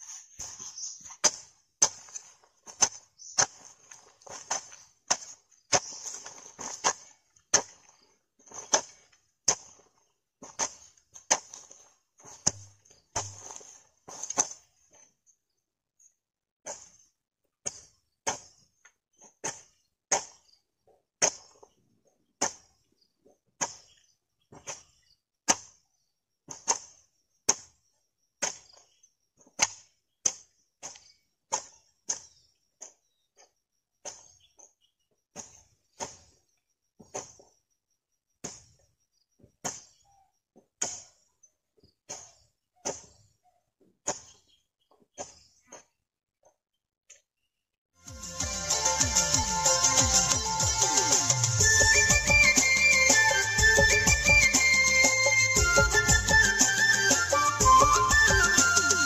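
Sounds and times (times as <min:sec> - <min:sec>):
falling soil clods: 0:00.0 - 0:15.0
hoe chopping into dry soil: 0:00.4 - 0:15.0, 0:16.6 - 0:37.6, 0:38.4 - 0:38.8, 0:39.4 - 0:46.0.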